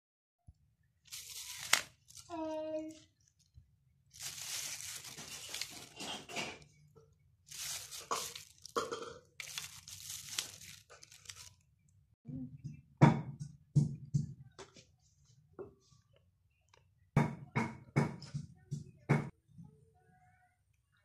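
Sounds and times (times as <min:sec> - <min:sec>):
plastic wrapping crinkling: 0:01.0 - 0:06.8, 0:07.4 - 0:11.7.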